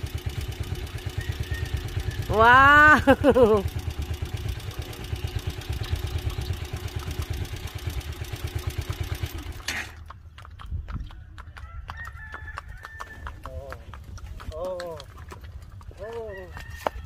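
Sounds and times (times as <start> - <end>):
motorcycle engine running: 0.0 - 17.0
rooster crowing: 1.1 - 2.5, 11.4 - 13.5, 16.2 - 17.0
horse hooves on concrete: 9.4 - 17.0.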